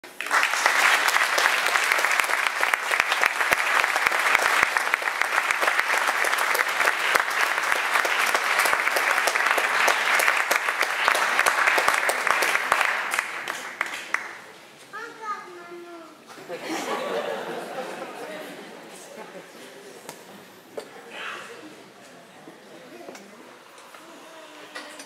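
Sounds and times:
audience applauding: 0.0s - 14.5s.

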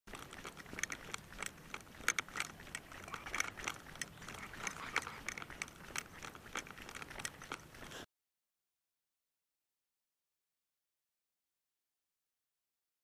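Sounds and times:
fishing gear rattling: 0.1s - 8.1s.

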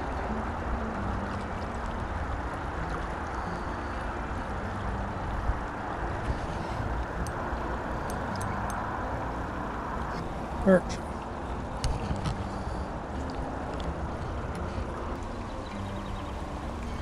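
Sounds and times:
river water rushing over riffle: 0.0s - 17.0s.

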